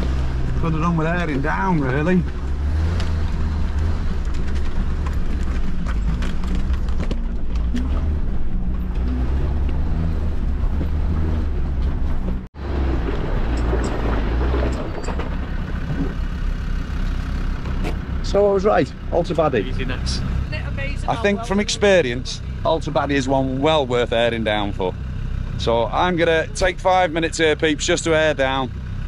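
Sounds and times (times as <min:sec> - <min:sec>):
car engine pulling at low revs: 0:00.0 - 0:29.0
stones knocking under tyres: 0:02.2 - 0:09.8.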